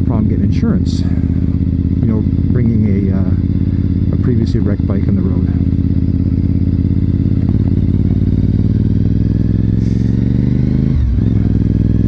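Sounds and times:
motorcycle engine accelerating: 0:00.0 - 0:12.0.

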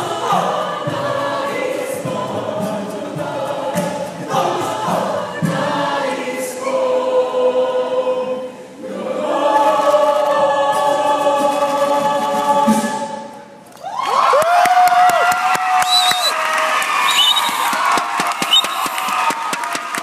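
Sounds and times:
mixed choir singing: 0:00.0 - 0:13.6
audience cheering and screaming: 0:13.7 - 0:20.0.

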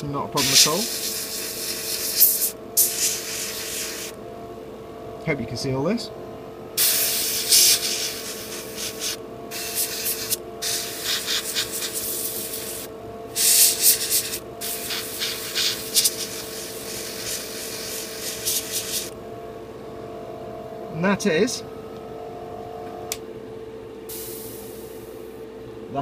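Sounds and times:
steady hum: 0:00.0 - 0:26.0
airbrush spraying hiss: 0:00.4 - 0:04.2, 0:06.8 - 0:19.2, 0:24.1 - 0:25.2.

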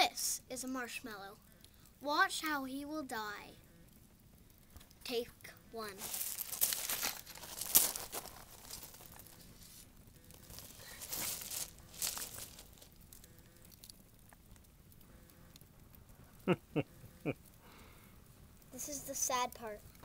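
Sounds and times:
campfire crackling: 0:00.0 - 0:20.0.

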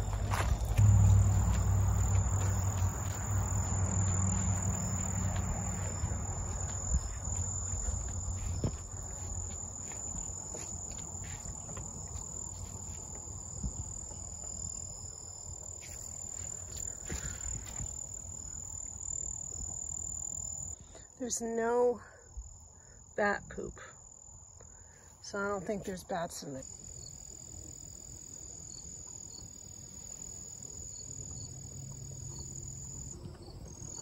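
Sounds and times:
crickets trilling: 0:00.0 - 0:34.0.

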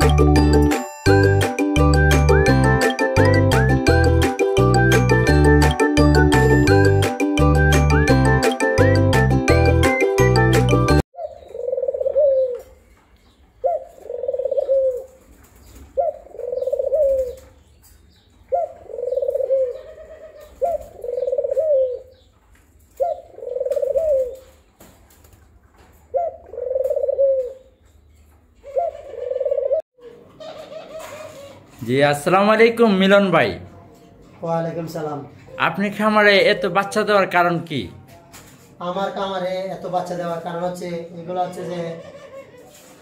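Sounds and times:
dove cooing: 0:11.2 - 0:12.8, 0:13.6 - 0:17.6, 0:18.5 - 0:22.3, 0:22.9 - 0:24.6, 0:26.0 - 0:27.8, 0:28.6 - 0:31.8.

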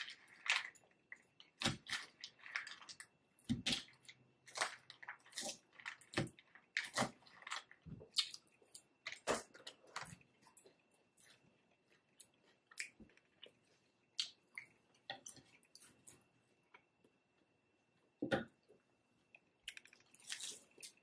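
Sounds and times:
chewing crunchy salad: 0:03.8 - 0:16.8.

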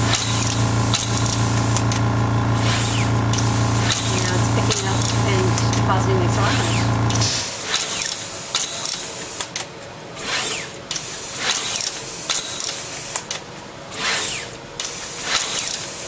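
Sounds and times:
stepper motors whining: 0:00.0 - 0:08.1
sharp machine clicks: 0:00.1 - 0:02.0, 0:02.6 - 0:13.4, 0:14.0 - 0:16.0.

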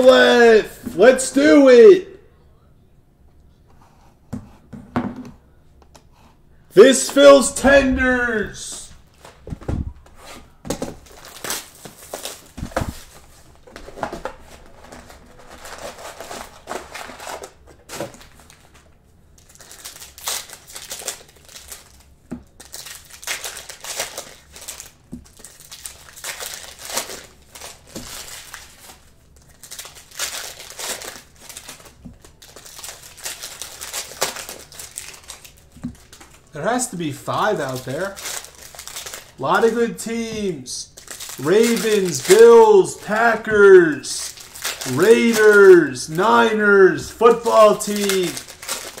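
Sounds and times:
plastic wrapping crinkling: 0:10.9 - 0:36.6, 0:37.5 - 0:46.1, 0:46.8 - 0:49.0.

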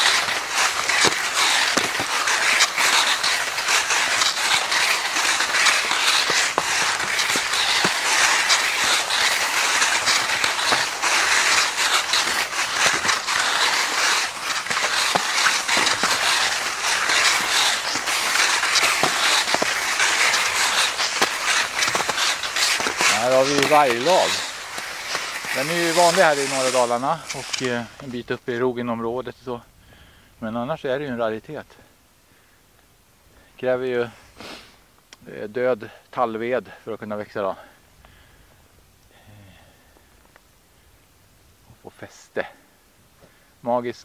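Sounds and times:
skis scraping over crusted snow: 0:00.0 - 0:29.1.

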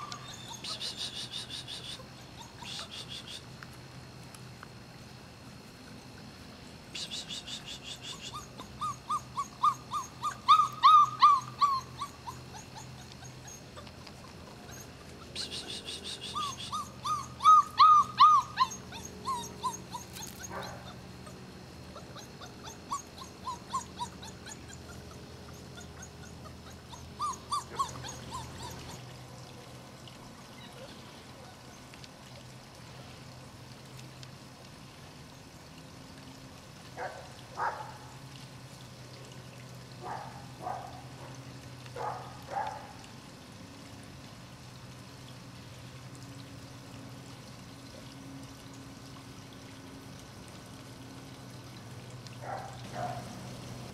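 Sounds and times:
puppies yipping: 0:00.0 - 0:03.1, 0:08.0 - 0:21.4, 0:22.0 - 0:29.1.

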